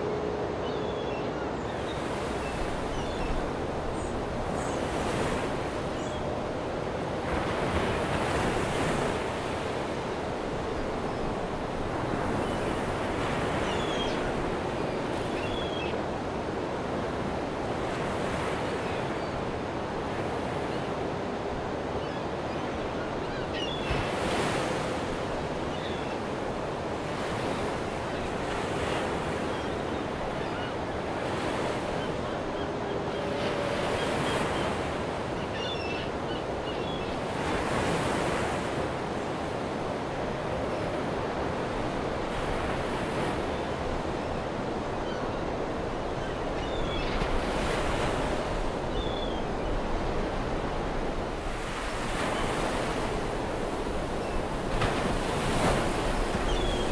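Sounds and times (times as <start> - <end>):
waves breaking: 23.2 - 56.9.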